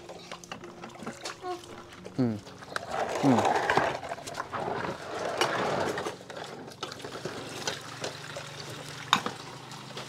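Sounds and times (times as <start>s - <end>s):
water splashing in a basin: 4.2s - 10.0s.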